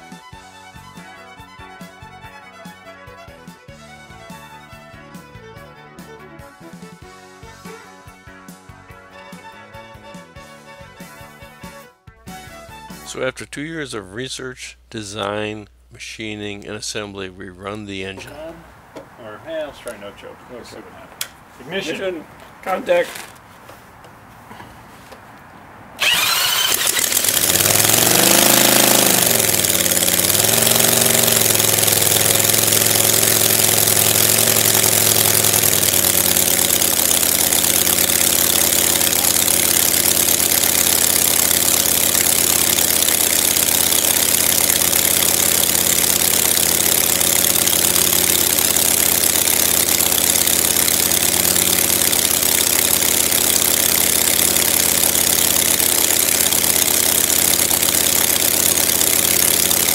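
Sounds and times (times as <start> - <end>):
model radial engine running: 0.0 - 5.6, 26.0 - 59.9
electric drill spinning: 26.0 - 59.9.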